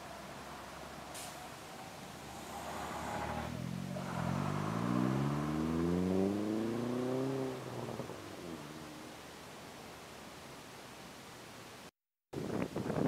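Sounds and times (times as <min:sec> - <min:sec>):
bus diesel engine accelerating: 0:00.0 - 0:09.2.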